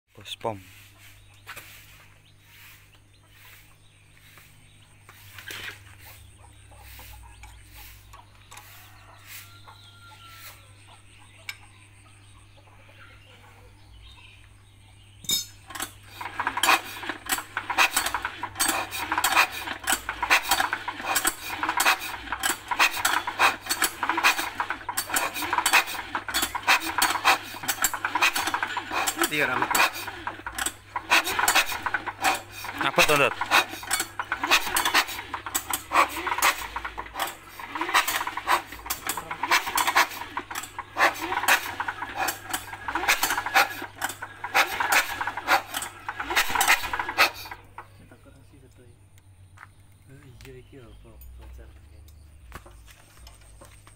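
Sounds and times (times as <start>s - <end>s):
diesel engine metallic clatter: 13.8s - 53.9s.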